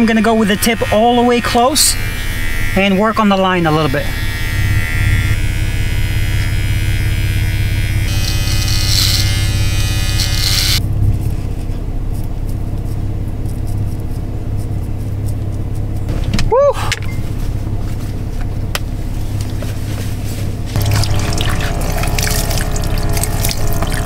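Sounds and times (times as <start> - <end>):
hair clippers buzzing: 0.0 - 10.8, 20.8 - 24.0
steady low hum: 0.0 - 24.0.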